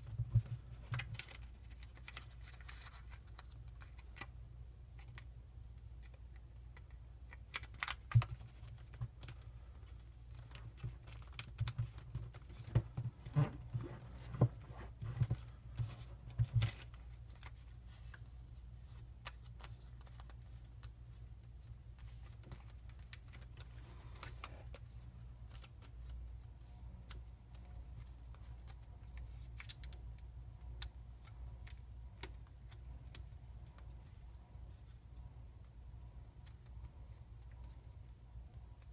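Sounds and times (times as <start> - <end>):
paper folding and creasing: 0.0 - 4.3, 6.8 - 30.2.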